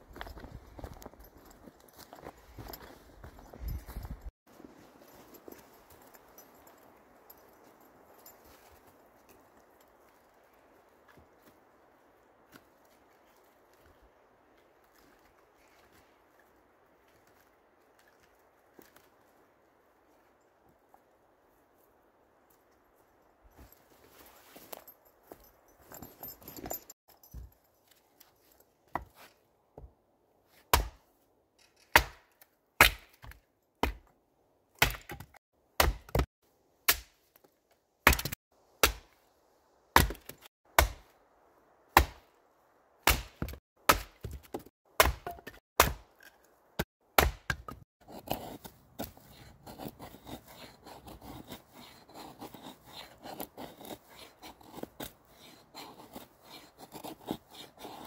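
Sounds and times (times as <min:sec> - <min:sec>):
hatchet chopping wood: 0:30.7 - 0:31.0, 0:31.8 - 0:34.1, 0:34.8 - 0:36.3, 0:36.9 - 0:37.2, 0:38.0 - 0:39.2, 0:39.9 - 0:41.1, 0:41.9 - 0:42.4, 0:43.0 - 0:58.0
knife scraping a stick: 0:48.0 - 0:58.0.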